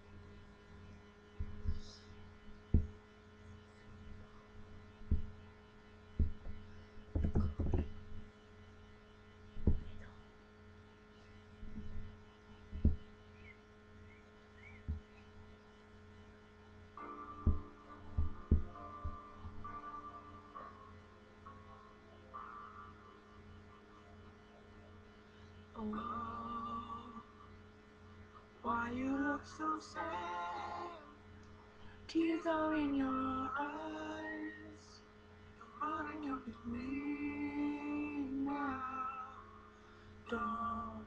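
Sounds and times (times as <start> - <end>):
low electrical hum: 0.0 - 41.0
dull thumps and knocks: 1.4 - 1.9, 2.7 - 3.0, 5.0 - 5.4, 6.2 - 8.3, 9.6 - 10.0, 12.7 - 13.1, 14.8 - 15.1, 17.4 - 19.7.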